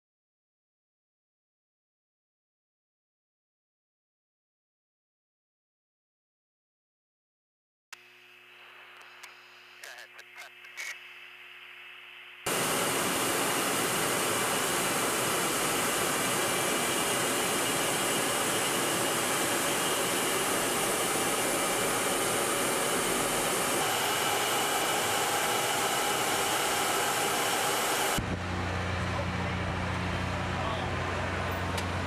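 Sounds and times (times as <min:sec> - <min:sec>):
jet engine roaring with whine: 0:12.5 - 0:32.0.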